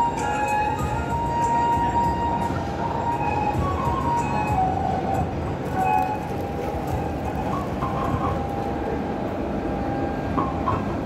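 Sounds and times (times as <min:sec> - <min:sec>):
crowd hubbub: 0:00.0 - 0:11.0
faint indistinct voices: 0:00.0 - 0:11.0
rumbling background noise: 0:00.0 - 0:11.0.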